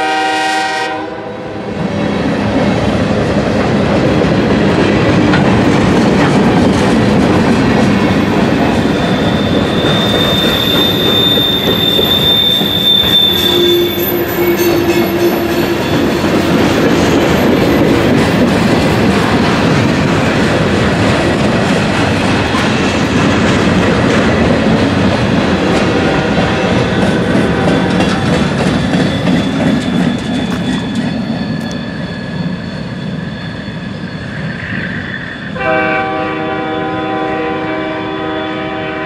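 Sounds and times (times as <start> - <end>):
multi-chime train horn: 0.0 - 1.5, 9.3 - 15.8, 35.5 - 39.0
freight train wheels clattering: 1.8 - 34.6.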